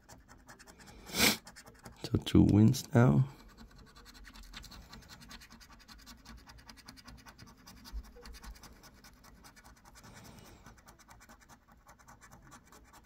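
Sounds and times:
scratch card scratching: 0:00.0 - 0:13.0.

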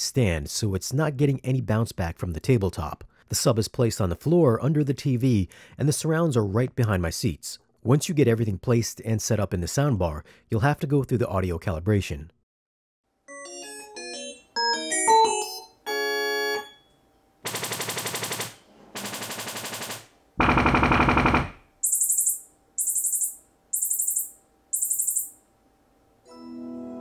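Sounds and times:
held tone: 0:20.4 - 0:25.4
buzzy test-tone bursts: 0:21.8 - 0:25.4
short high-pitched chirps: 0:21.8 - 0:25.4.

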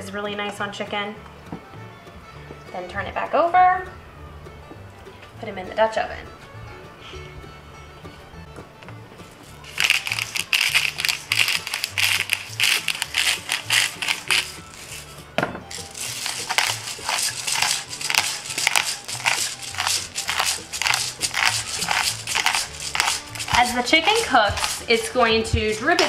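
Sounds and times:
soft background music: 0:00.0 - 0:26.0
salt and pepper grinders grinding: 0:09.4 - 0:25.1.

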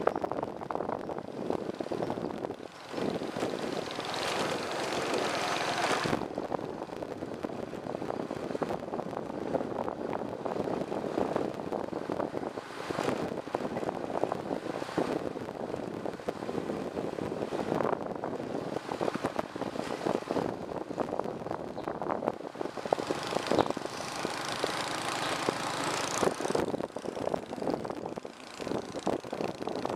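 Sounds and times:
wind rushing over microphone: 0:00.0 - 0:29.9
engine-like drone: 0:02.2 - 0:06.4.

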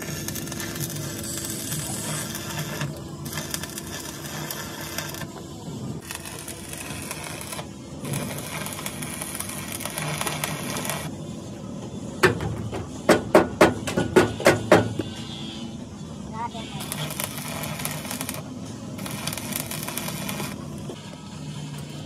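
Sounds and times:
workshop noise: 0:00.0 - 0:22.0.

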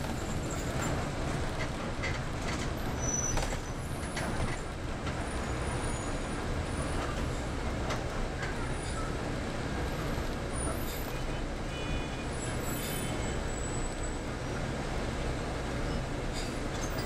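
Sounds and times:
bus engine and road rumble: 0:00.0 - 0:17.0.

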